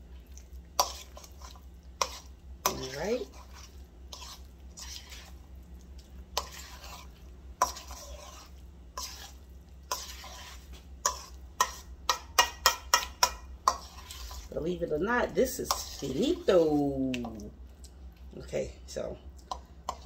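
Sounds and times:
utensil scraping a metal bowl: 0:00.8 - 0:05.4, 0:06.3 - 0:17.2.

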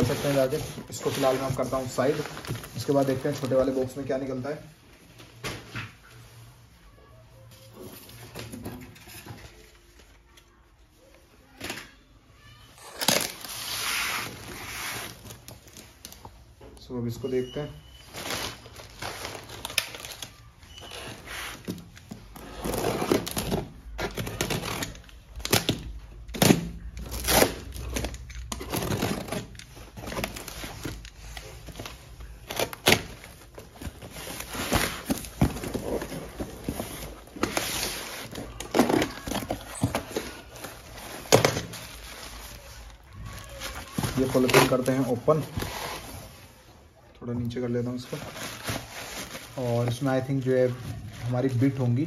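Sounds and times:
plastic bag crinkling: 0:26.6 - 0:46.6.

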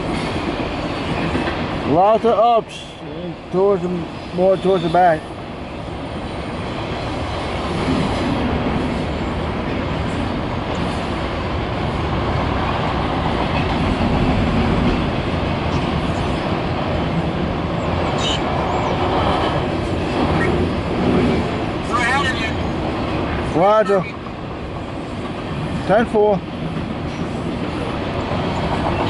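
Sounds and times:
freight train wheels rumbling: 0:00.0 - 0:29.0.

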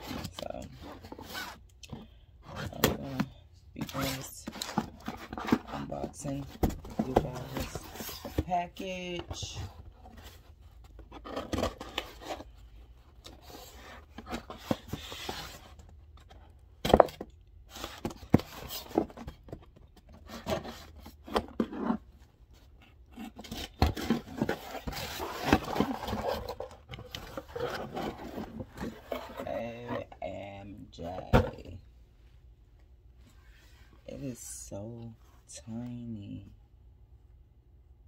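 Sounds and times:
cardboard scraping and rustling: 0:00.0 - 0:01.6, 0:02.4 - 0:12.6, 0:13.3 - 0:30.2.

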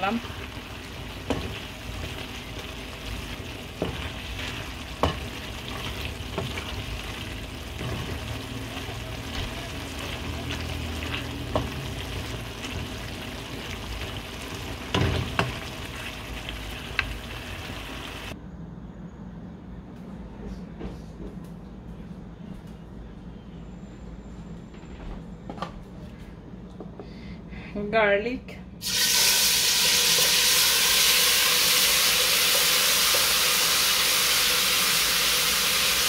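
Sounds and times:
greens sizzling in frying pan: 0:00.0 - 0:18.4, 0:28.8 - 0:36.0
spatula knocking and scraping pan: 0:01.1 - 0:15.7.

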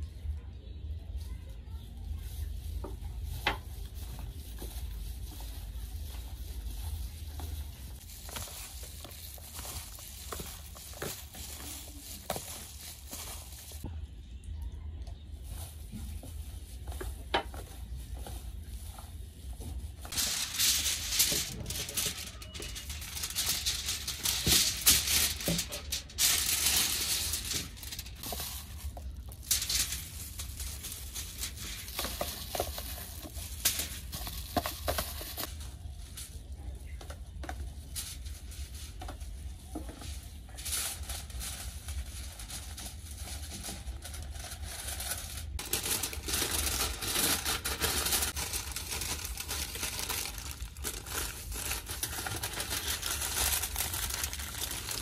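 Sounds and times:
aluminium foil crinkling: 0:00.0 - 0:55.0.

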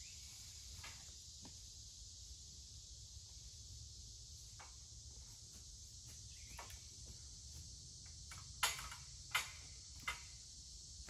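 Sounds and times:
insects chirring: 0:00.0 - 0:11.0
metal ladder knocking and rattling: 0:08.3 - 0:10.4.

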